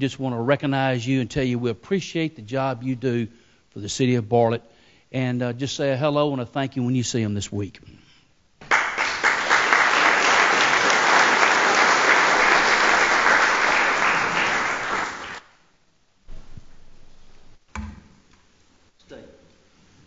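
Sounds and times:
audience applauding: 0:08.6 - 0:15.6.

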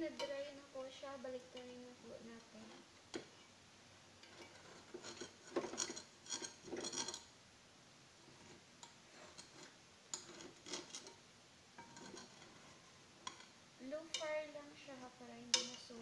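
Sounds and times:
metal spoon scraping frying pan: 0:04.2 - 0:07.3, 0:08.3 - 0:11.2, 0:11.8 - 0:14.6, 0:15.4 - 0:16.0.

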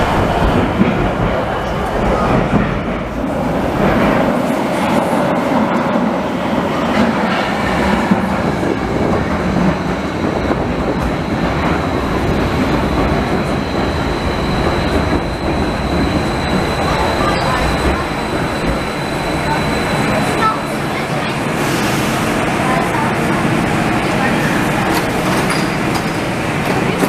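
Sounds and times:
train wheels rumbling on rails: 0:00.0 - 0:27.0
high-pitched whine: 0:07.7 - 0:21.4.

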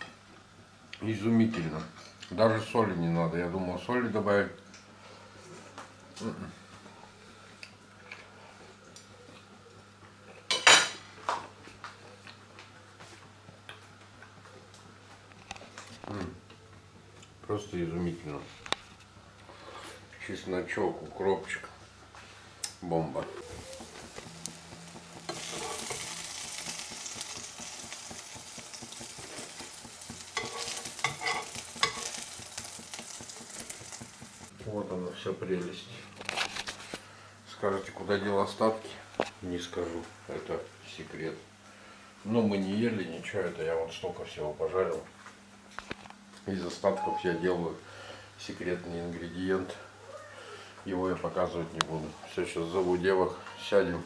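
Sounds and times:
bread frying in hot oil: 0:22.3 - 0:34.5
spatula clicks and scrapes: 0:25.2 - 0:34.2
cutlery and dishes clinking: 0:30.4 - 0:32.2.

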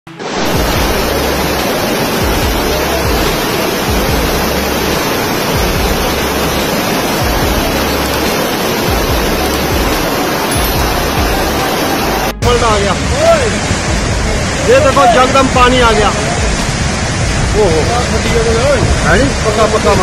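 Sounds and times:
floodwater rushing: 0:00.1 - 0:20.0.

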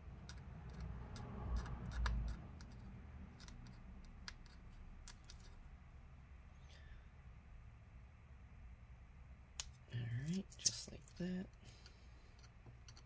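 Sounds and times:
adhesive strip peeling ticks: 0:00.2 - 0:05.5.

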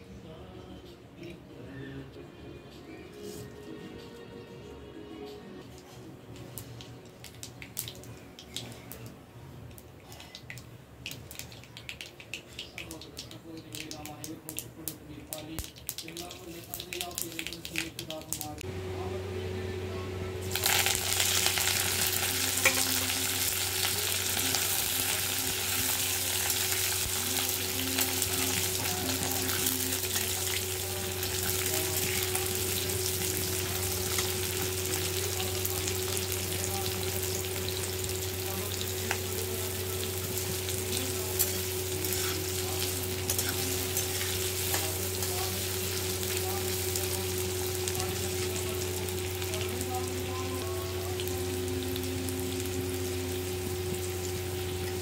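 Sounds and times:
low steady hum: 0:17.8 - 0:55.0
onions sizzling in hot oil: 0:20.4 - 0:55.0.

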